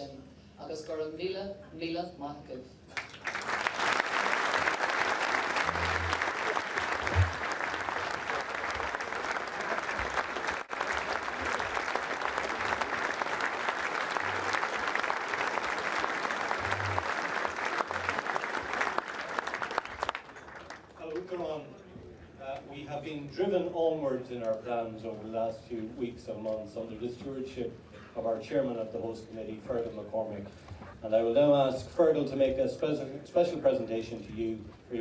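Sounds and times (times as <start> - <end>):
large audience applauding: 2.9 - 21.3.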